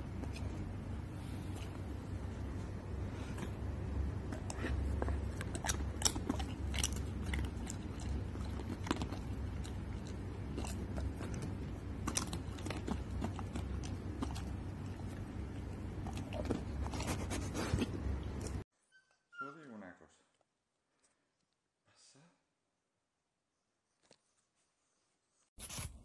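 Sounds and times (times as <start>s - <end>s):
dog crunching treat: 4.3s - 18.6s.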